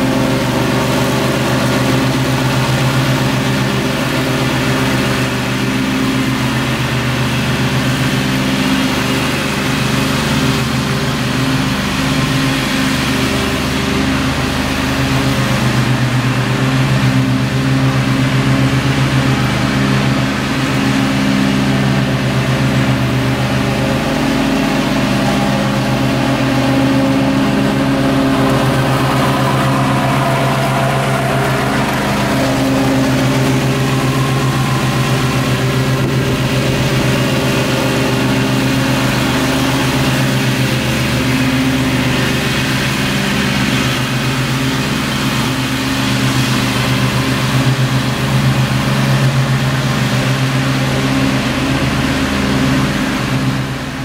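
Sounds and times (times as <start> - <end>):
riding mower engine running: 0.0 - 54.0.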